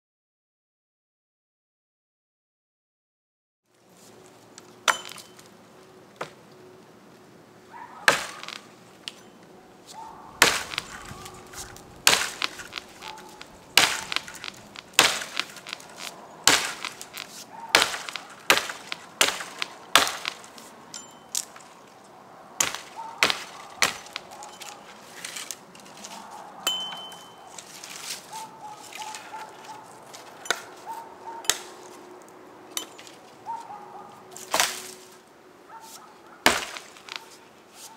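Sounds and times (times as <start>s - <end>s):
axe chopping log: 4.9s - 5.3s, 8.1s - 8.6s, 10.4s - 20.5s, 22.6s - 24.4s, 34.5s - 34.9s, 36.5s - 37.3s.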